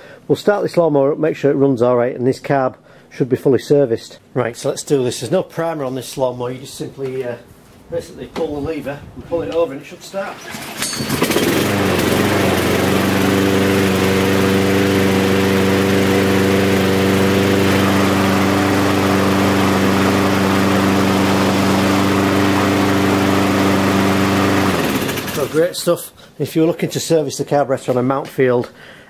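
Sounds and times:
lawnmower engine running: 0:10.3 - 0:25.7.

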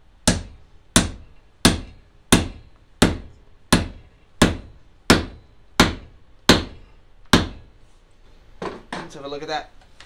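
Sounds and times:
hammer striking steel wedge: 0:00.2 - 0:07.7.

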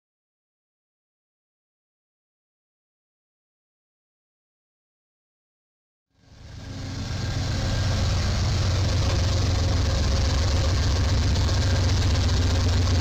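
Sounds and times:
diesel locomotive engine rumble: 0:06.2 - 0:13.0.

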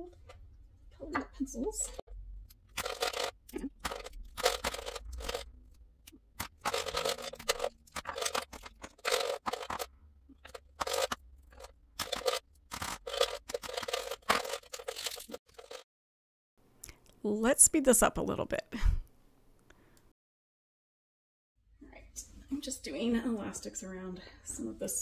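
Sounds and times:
plastic pens rattling and clacking: 0:02.7 - 0:05.5, 0:06.4 - 0:15.8.

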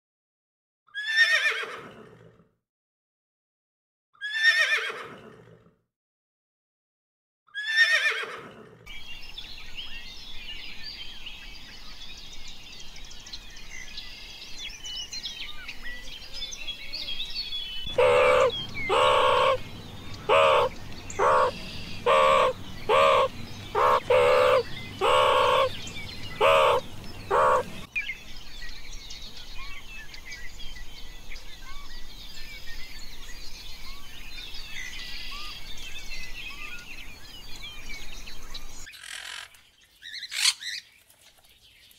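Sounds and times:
horse whinny: 0:01.0 - 0:02.4, 0:04.2 - 0:05.6, 0:07.6 - 0:08.7
birds chirping: 0:08.9 - 0:41.9
meerkat calls: 0:17.9 - 0:19.6, 0:20.2 - 0:27.9.

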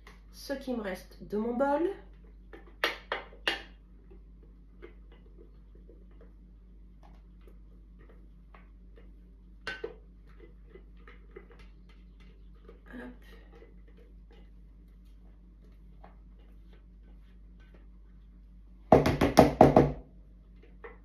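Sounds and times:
utensil knocking on mixing bowl: 0:18.9 - 0:20.0.

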